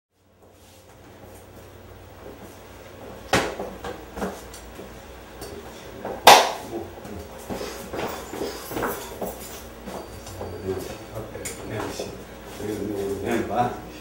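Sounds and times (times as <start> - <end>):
low steady hum: 0.2 - 14.0
sharp knocks: 6.1 - 6.6.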